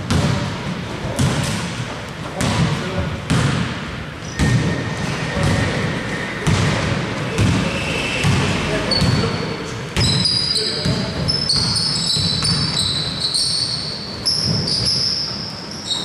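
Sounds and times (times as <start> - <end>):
basketball bouncing on court: 0.0 - 1.6, 2.4 - 4.8, 6.4 - 13.2.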